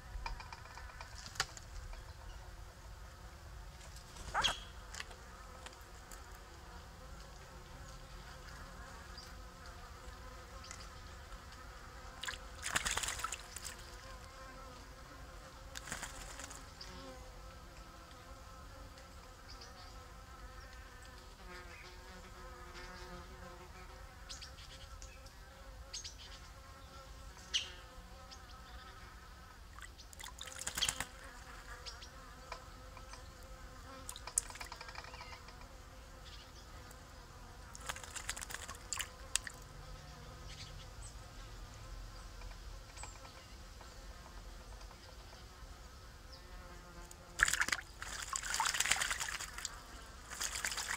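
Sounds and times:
insect buzz: 0.0 - 50.9
birds splashing in water: 12.2 - 14.1, 15.7 - 16.7, 29.7 - 31.2, 37.7 - 39.6, 47.4 - 50.9.

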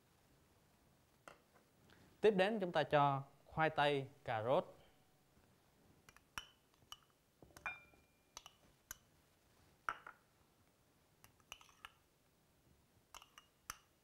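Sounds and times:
spoon clinking on glass bowl: 7.6 - 9.0.

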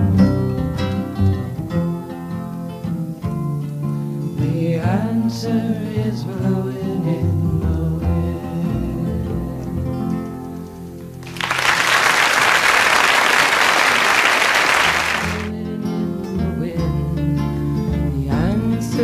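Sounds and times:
music: 0.0 - 19.0
loud applause: 11.2 - 15.5.

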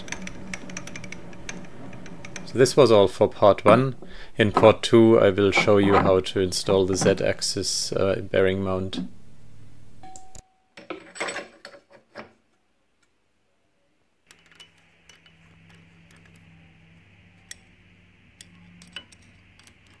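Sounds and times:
low steady hum and hiss: 0.0 - 11.8.

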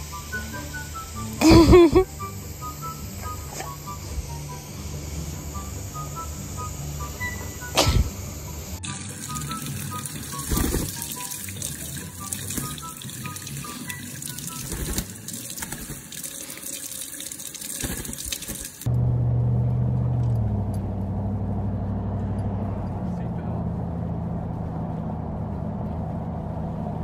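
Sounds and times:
steady low hum: 0.0 - 15.3, 18.8 - 27.0
running water splashing: 8.8 - 18.9.

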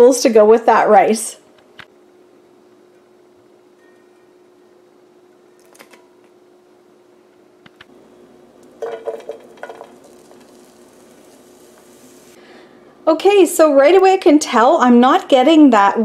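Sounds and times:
faint steady hum: 0.0 - 16.0
pepper strips clattering into a pan: 8.6 - 11.4.

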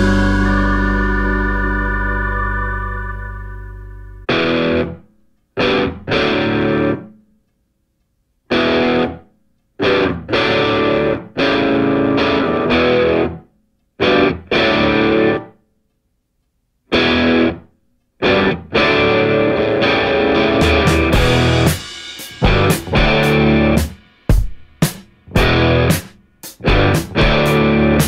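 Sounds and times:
stop-start music chords: 0.0 - 4.7, 20.0 - 24.0.

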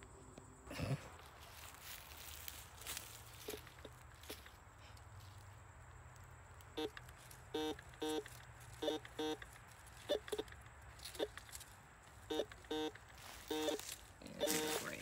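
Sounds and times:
metal detector beeping: 6.8 - 11.5, 12.2 - 15.0.

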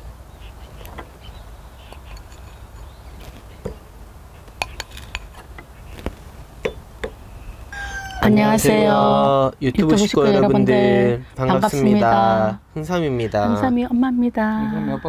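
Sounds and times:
ceramic bowls clinking: 1.9 - 3.0.

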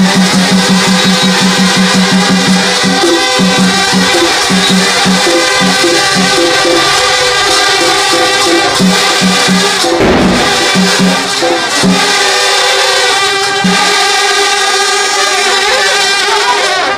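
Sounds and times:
drum beating: 0.0 - 14.6
brass horns droning: 0.0 - 16.9.

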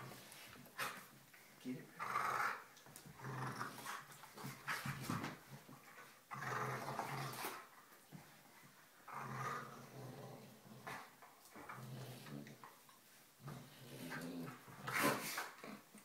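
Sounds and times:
dogs play-growling: 0.0 - 1.2, 2.0 - 16.0.

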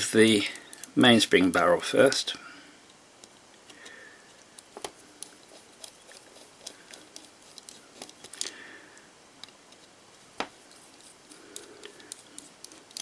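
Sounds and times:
screwdriver clicks and scrapes: 4.6 - 8.4, 10.7 - 13.0.

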